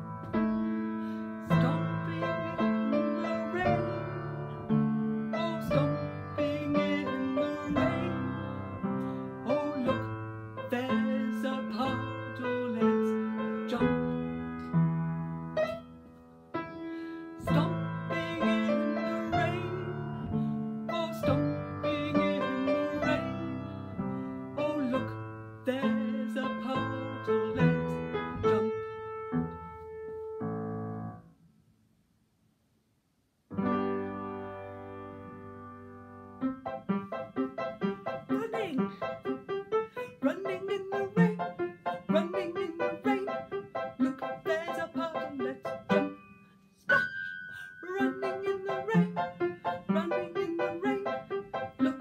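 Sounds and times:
piano playing a tune: 0.0s - 31.3s, 33.5s - 52.0s.

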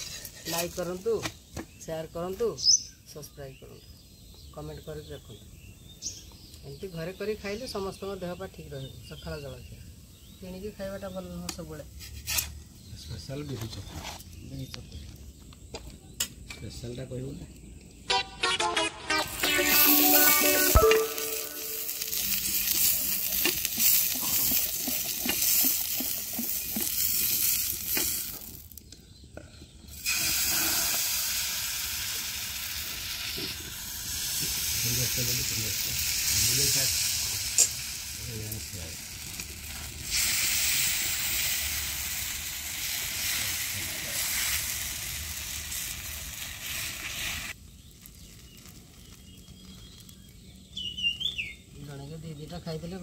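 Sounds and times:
stick scraping pan: 0.0s - 0.8s, 11.9s - 12.6s
oil sizzling on hot pan: 19.3s - 28.8s, 29.9s - 50.3s.

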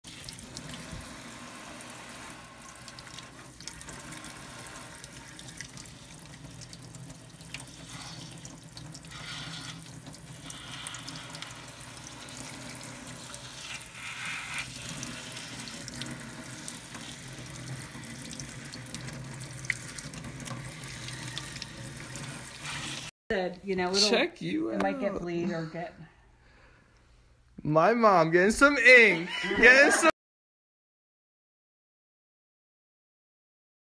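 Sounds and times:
faucet water splashing into sink: 0.0s - 23.1s
hands rubbing under water: 13.4s - 15.6s.

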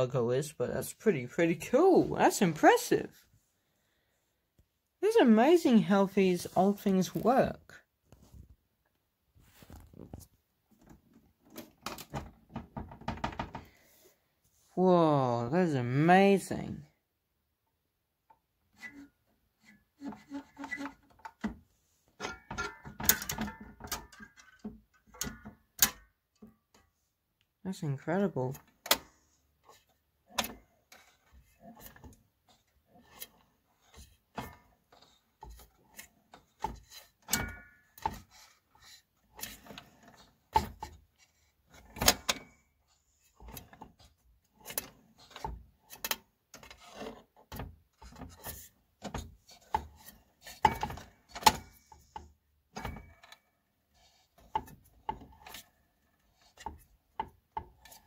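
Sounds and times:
hands handling metal and plastic parts: 20.3s - 26.9s, 28.6s - 58.0s.

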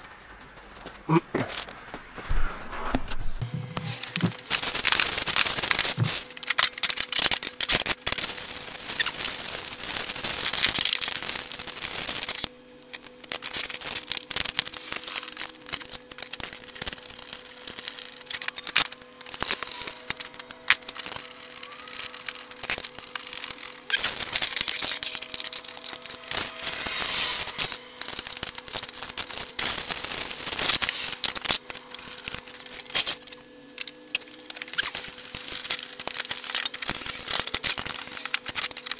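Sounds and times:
plastic wrapping crinkling and tearing: 3.7s - 38.9s.

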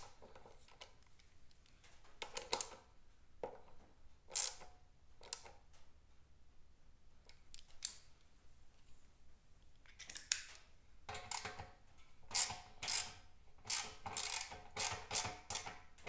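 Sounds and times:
hand tool clicking on metal bolt: 12.3s - 15.8s.

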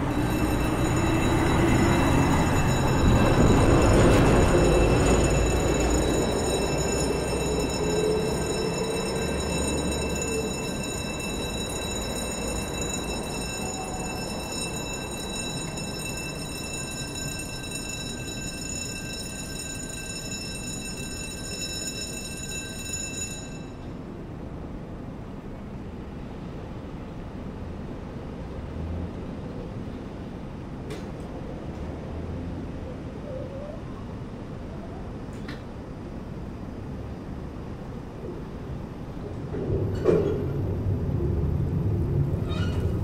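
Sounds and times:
passing vehicle rumble: 0.0s - 10.7s, 39.4s - 43.0s.

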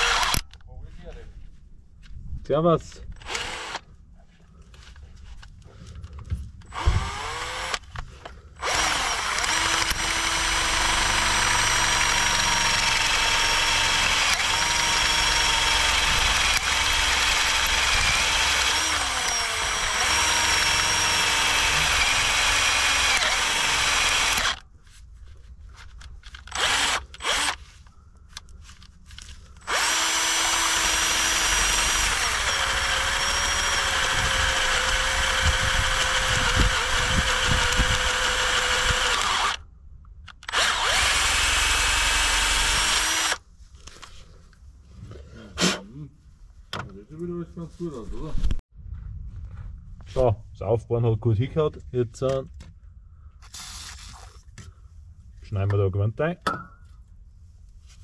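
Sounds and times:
electric drill boring metal: 0.0s - 0.5s, 3.2s - 3.8s, 6.7s - 7.9s, 8.6s - 24.6s, 26.5s - 27.6s, 29.6s - 39.6s, 40.4s - 43.4s.

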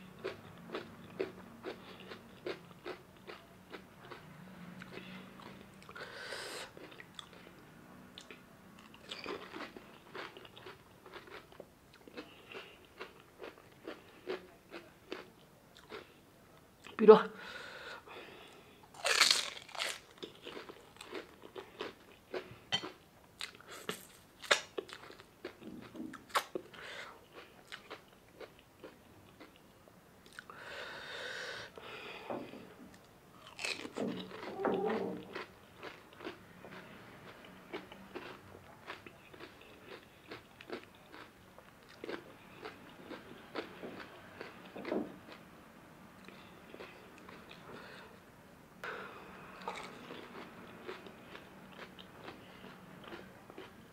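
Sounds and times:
crisp shells crunching: 19.0s - 21.2s.

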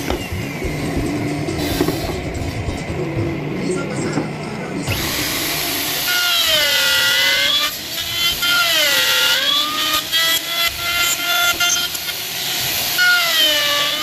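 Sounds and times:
router motor whining cutting wood: 4.9s - 14.0s.

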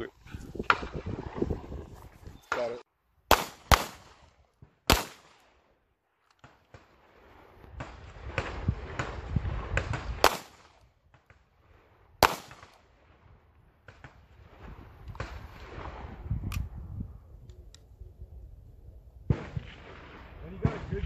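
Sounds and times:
pistol shots: 3.3s - 4.3s, 4.9s - 5.5s, 10.2s - 10.8s, 12.2s - 12.8s.

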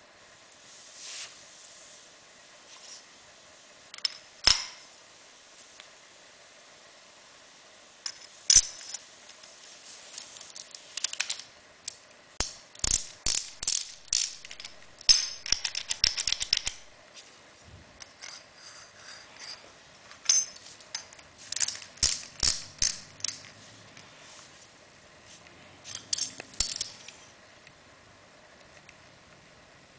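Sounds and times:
metallic clicks and rattles: 10.2s - 16.9s, 20.1s - 23.5s, 25.9s - 27.2s.

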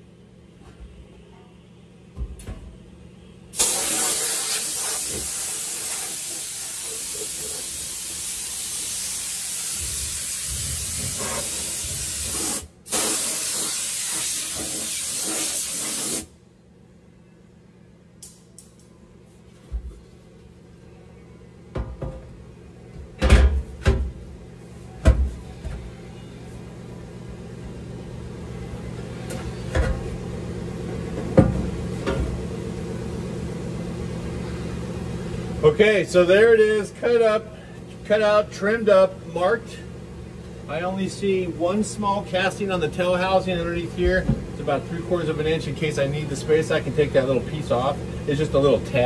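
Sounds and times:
pressurized spray hissing: 3.6s - 16.3s.

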